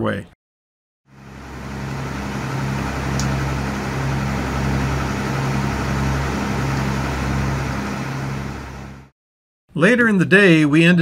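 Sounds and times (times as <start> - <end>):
boat diesel engine drone: 1.1 - 9.1
wind and water hiss: 1.2 - 9.0.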